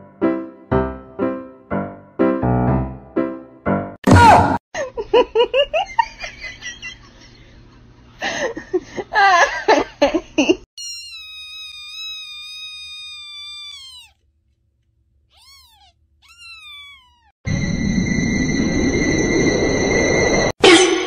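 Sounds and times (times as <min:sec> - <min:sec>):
kitten meowing: 0:10.8 - 0:14.2, 0:15.3 - 0:17.4.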